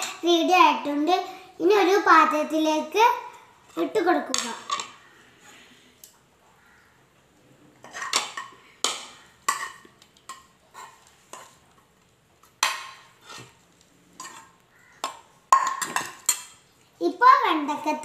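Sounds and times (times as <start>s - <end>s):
spoon scraping frying pan: 7.8s - 11.7s, 12.5s - 16.7s.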